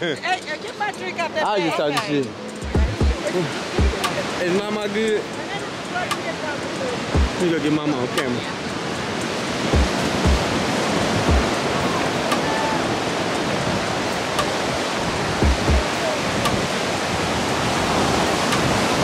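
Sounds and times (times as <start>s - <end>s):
ocean surf breaking on beach: 0.0s - 19.0s
short low thumps: 2.6s - 3.2s, 7.2s - 7.4s, 15.4s - 15.8s.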